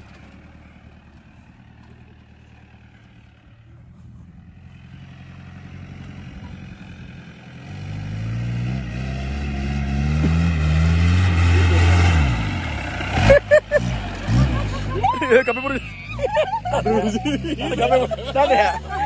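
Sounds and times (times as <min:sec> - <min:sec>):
diesel engine revving: 0:00.0 - 0:19.0.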